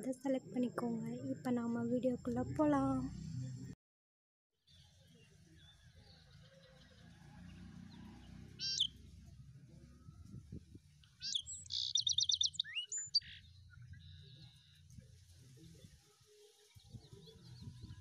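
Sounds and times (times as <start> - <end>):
small bird chirping and trilling: 7.9 - 9.0, 11.1 - 14.8.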